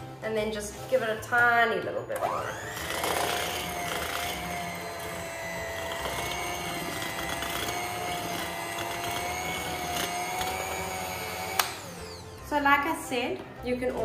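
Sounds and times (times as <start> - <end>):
electric hand mixer whining: 2.0 - 12.5.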